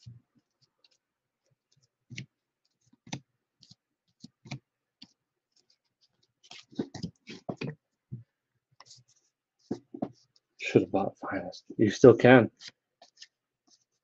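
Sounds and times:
cards clicking and tapping: 2.0s - 5.2s.

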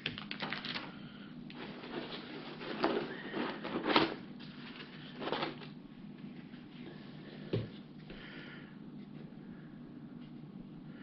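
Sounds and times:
rustles and scrapes of packing: 1.5s - 6.9s.

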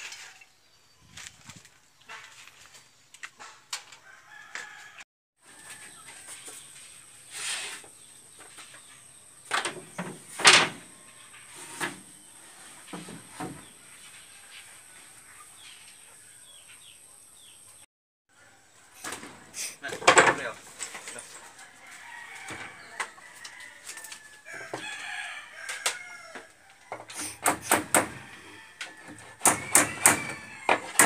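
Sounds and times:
rooster crowing: 4.0s - 5.9s, 21.6s - 27.4s, 28.0s - 31.0s.

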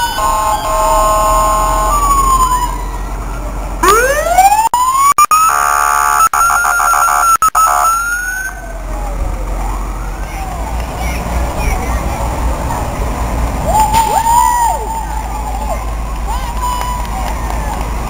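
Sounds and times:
horn blasts: 0.0s - 2.2s, 5.4s - 8.2s
fire engine siren wailing: 0.0s - 11.4s, 12.2s - 18.0s.

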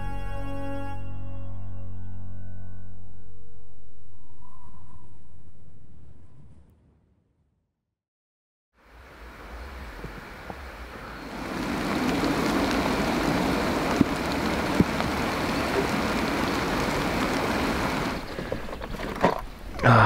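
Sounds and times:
rain falling on leaves: 8.8s - 18.6s.

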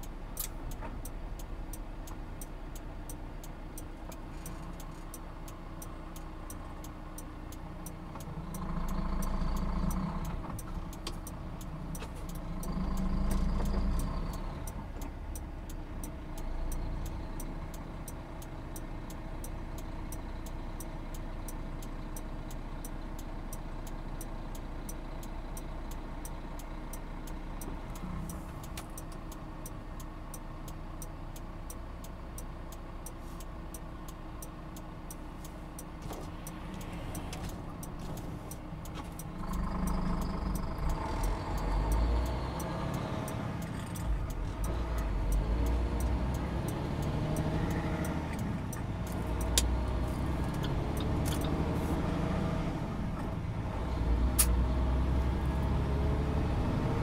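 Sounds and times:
even ticking: 0.0s - 52.7s
truck cab engine and road noise: 0.0s - 57.0s.

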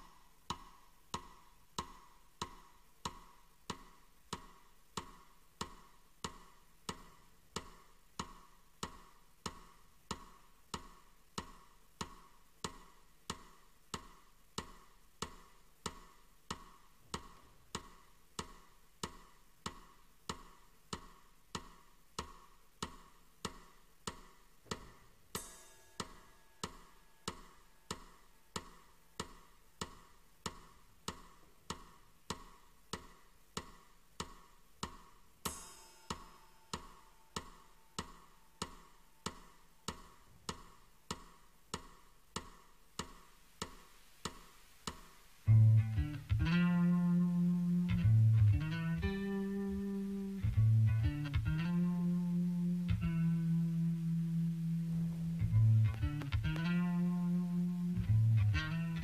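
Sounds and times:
metronome ticking: 0.0s - 59.0s.

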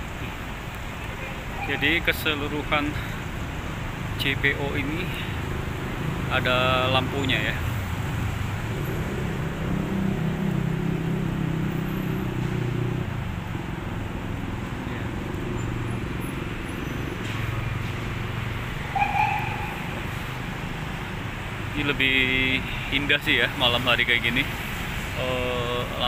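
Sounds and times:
road traffic rumble: 0.0s - 26.0s.

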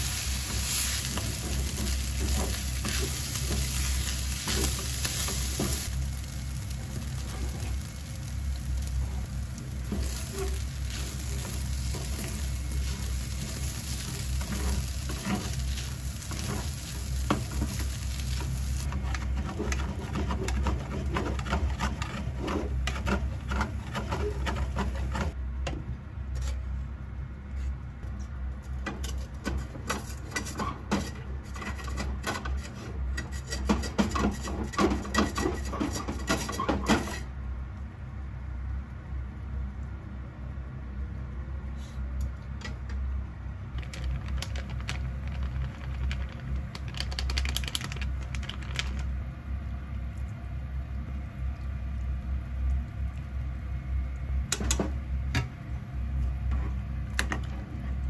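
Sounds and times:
spatula scraping a pan: 0.0s - 5.9s, 9.9s - 25.4s, 29.0s - 37.3s
rice sizzling in a frying pan: 0.0s - 25.4s
low steady hum: 37.2s - 58.0s.

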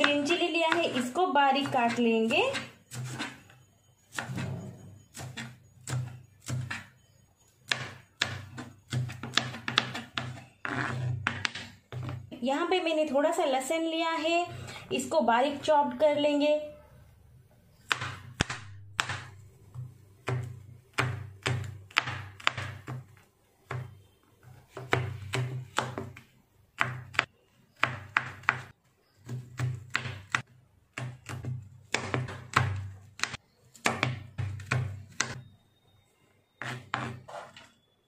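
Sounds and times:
knife chopping on plastic board: 0.0s - 3.4s, 5.1s - 6.9s, 7.7s - 12.3s, 17.8s - 24.0s, 24.7s - 35.4s, 36.6s - 37.3s.

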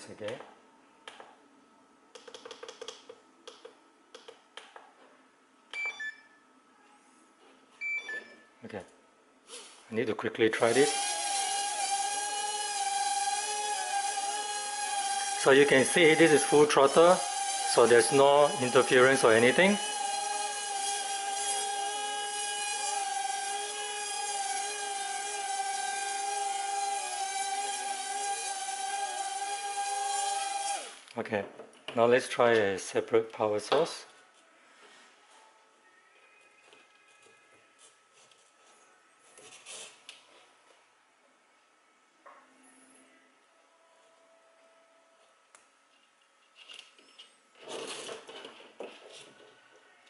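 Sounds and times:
electronic beeps: 7.8s - 8.5s
quadcopter motors whining: 10.7s - 31.0s.

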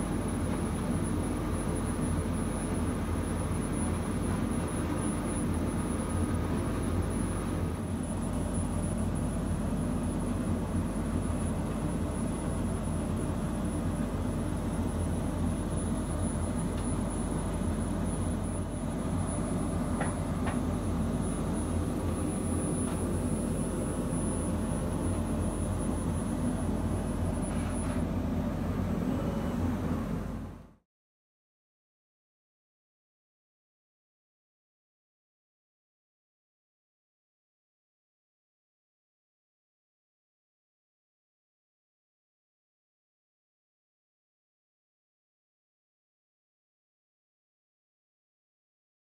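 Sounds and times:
faint high whine: 0.0s - 30.8s
machine fans whirring: 0.0s - 30.8s.

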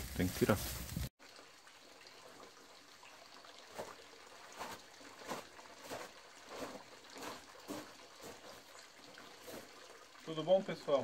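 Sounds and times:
footsteps crunching on gravel: 4.6s - 8.7s.

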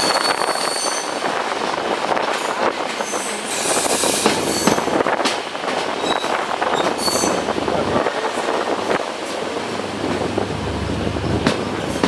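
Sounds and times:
high-pitched wheel squeal: 0.0s - 1.2s, 6.0s - 7.5s
train wheels rumbling on rails: 0.0s - 12.0s
clatter over rail joints: 4.1s - 7.4s, 11.4s - 12.0s.

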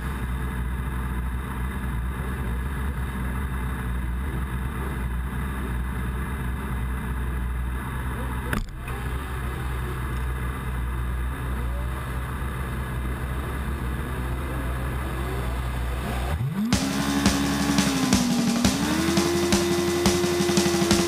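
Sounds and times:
motorcycle engines idling: 0.0s - 21.0s
motorcycle throttle revs: 0.0s - 21.0s.

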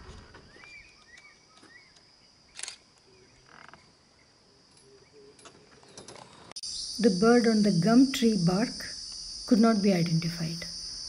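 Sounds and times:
insect chorus: 0.0s - 11.0s
faint bird chirps: 0.4s - 6.0s.

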